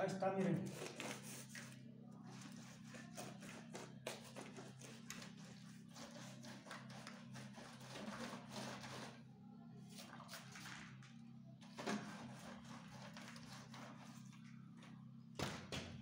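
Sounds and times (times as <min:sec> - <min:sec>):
stick scraping wet concrete: 0:02.5 - 0:09.2.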